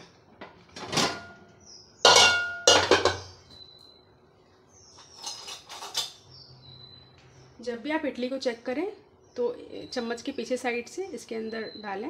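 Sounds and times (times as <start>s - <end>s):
metal cookware clanking: 0.8s - 1.4s, 2.0s - 3.4s, 4.9s - 6.2s.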